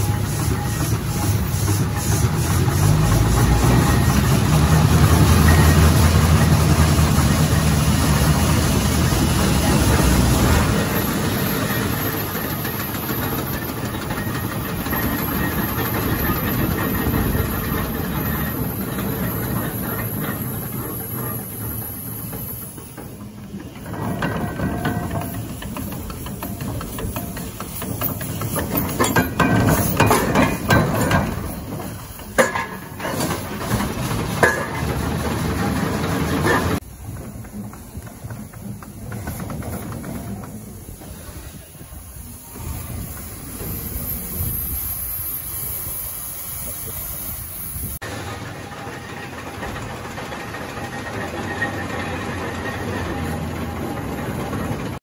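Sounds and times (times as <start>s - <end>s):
gearing clattering: 0.0s - 41.2s
steam engine rumbling: 0.0s - 55.0s.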